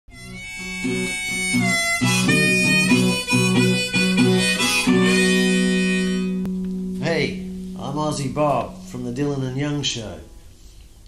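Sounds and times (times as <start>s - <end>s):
blues harmonica: 0.1s - 7.9s
resonator guitar strumming: 0.1s - 10.7s.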